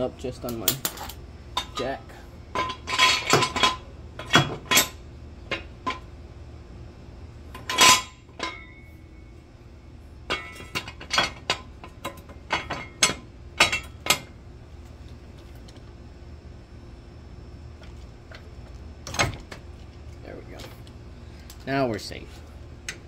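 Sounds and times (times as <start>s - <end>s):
metal clinks and clanks: 0.5s - 6.0s.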